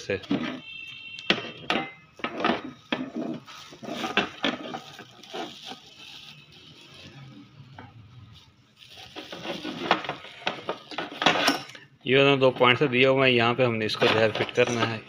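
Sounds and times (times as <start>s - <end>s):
plastic bag crinkling: 2.3s - 10.9s.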